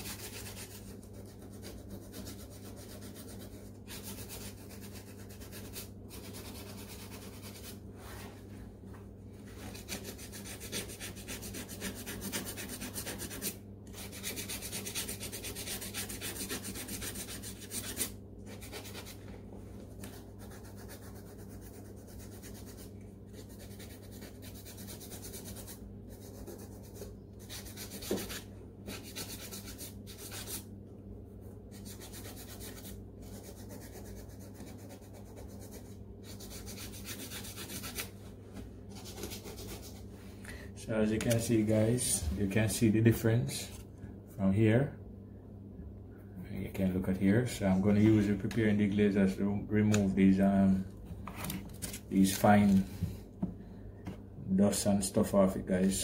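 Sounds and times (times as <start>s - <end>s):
steady low hum: 0.0s - 56.0s
sandpaper scraping leather: 9.6s - 19.2s, 20.4s - 30.6s, 31.8s - 38.1s.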